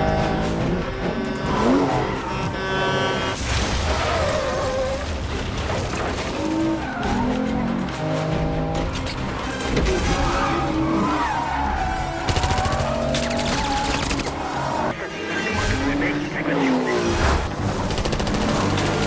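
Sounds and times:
rapid gunfire: 12.3s - 14.4s, 17.5s - 19.0s.

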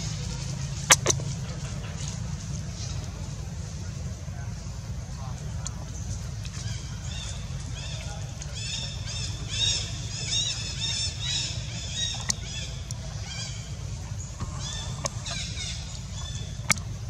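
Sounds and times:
low rumble: 0.0s - 17.0s.

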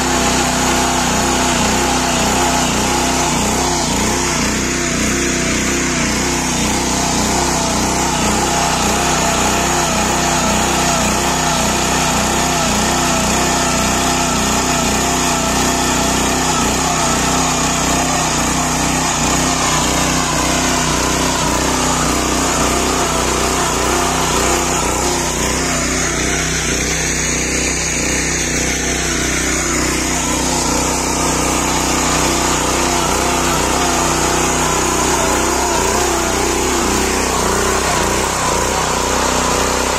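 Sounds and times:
tiller engine running: 0.0s - 39.9s
tines churning soil: 0.0s - 39.9s.

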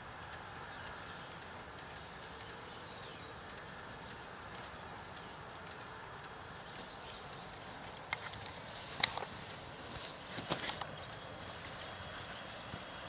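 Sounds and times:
outdoor background hiss: 0.0s - 13.0s.

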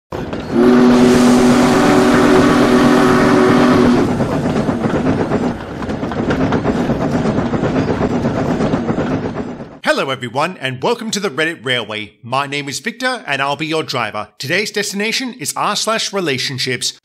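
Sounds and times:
train rattling past: 0.1s - 10.3s
steam train whistle: 0.4s - 4.2s.

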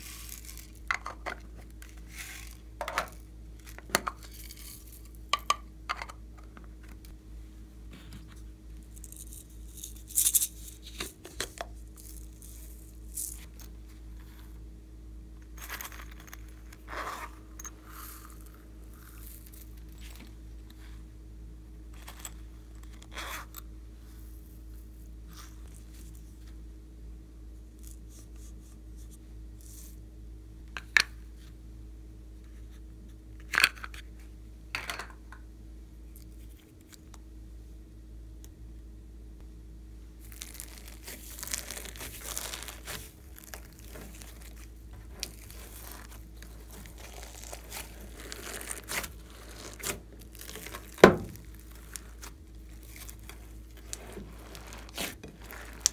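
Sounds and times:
slime squishing and crinkling: 0.0s - 5.2s, 40.2s - 55.9s.

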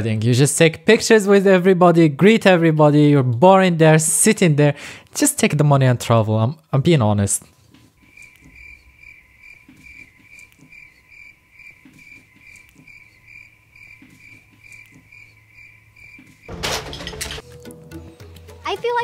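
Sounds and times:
crickets chirping: 7.9s - 16.6s.

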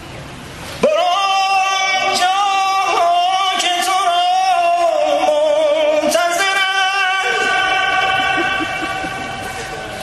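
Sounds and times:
faint crowd murmur: 0.0s - 1.1s, 7.2s - 10.0s
man singing unaccompanied: 0.8s - 9.4s.

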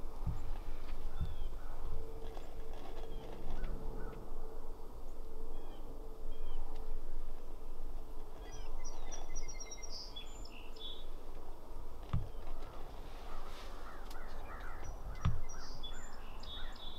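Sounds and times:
steady low rumble: 0.0s - 16.9s
small birds chirping: 0.2s - 4.2s, 8.3s - 11.3s, 12.0s - 16.9s
bird twittering song: 0.2s - 11.4s, 12.0s - 16.9s.

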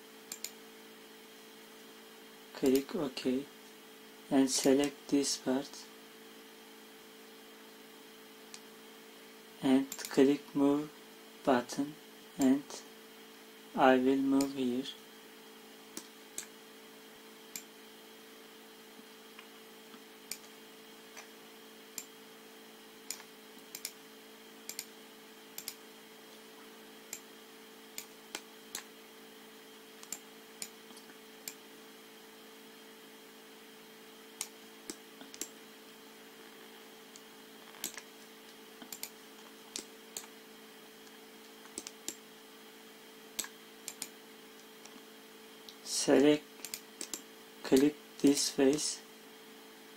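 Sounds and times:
low electrical hum: 0.0s - 49.9s
computer mouse clicking: 0.3s - 0.6s, 20.3s - 20.5s, 23.1s - 24.0s, 24.6s - 24.9s, 25.6s - 25.8s, 30.0s - 31.6s, 34.4s - 35.6s, 37.6s - 38.1s, 38.8s - 40.4s, 41.6s - 42.2s, 43.4s - 44.2s, 46.6s - 47.9s.

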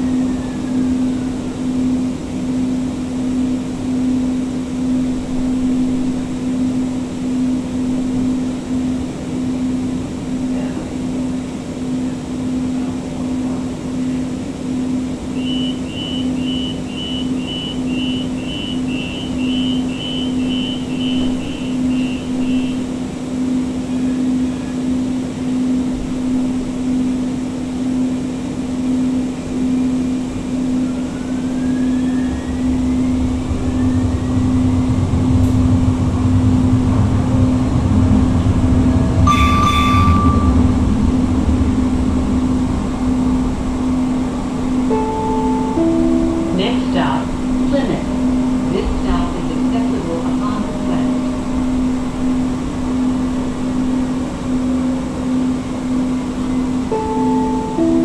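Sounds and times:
pulsing hum: 0.0s - 58.0s
train running rumble: 0.0s - 58.0s
high warning beeps: 15.4s - 22.8s, 39.3s - 40.8s
short ding: 39.3s - 40.8s.

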